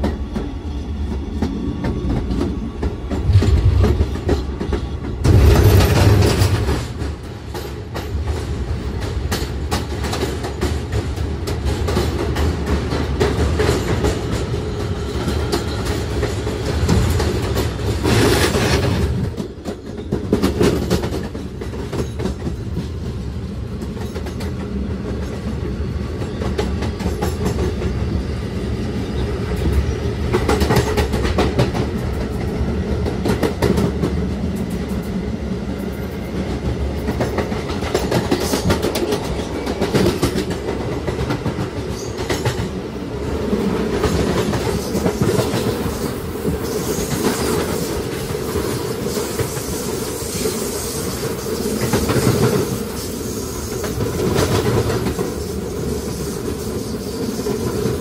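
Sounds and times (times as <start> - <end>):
subway train wheels rumbling on rail: 0.0 - 58.0
wheels clacking over rail joints: 1.1 - 23.0.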